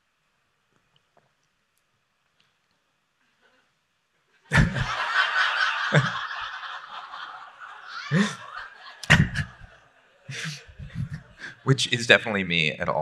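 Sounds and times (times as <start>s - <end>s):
group of people laughing: 4.5s - 11.8s.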